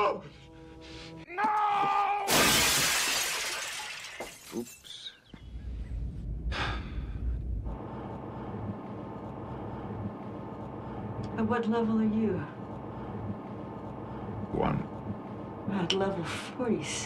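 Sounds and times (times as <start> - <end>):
loud shattering crash: 2.3 - 4.6
steady low hum: 5.3 - 17.0.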